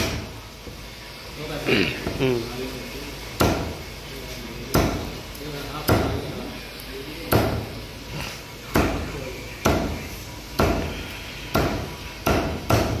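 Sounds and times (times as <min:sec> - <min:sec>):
cleaver chopping fish on wood: 0:03.4 - 0:03.7, 0:04.7 - 0:05.0, 0:05.9 - 0:06.2, 0:07.3 - 0:07.6, 0:08.7 - 0:09.0, 0:09.6 - 0:10.0, 0:10.6 - 0:10.9, 0:11.5 - 0:13.0.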